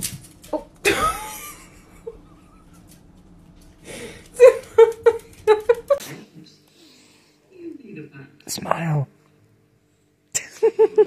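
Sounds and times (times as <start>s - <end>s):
person laughing: 0.8s - 2.9s, 4.1s - 6.0s, 10.4s - 11.0s.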